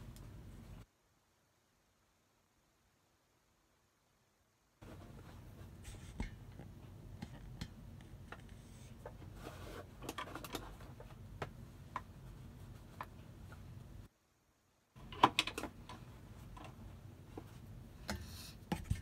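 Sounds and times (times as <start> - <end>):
low steady hum: 0.0 - 19.0
fabric rustling and scraping: 4.8 - 6.3, 8.6 - 11.2.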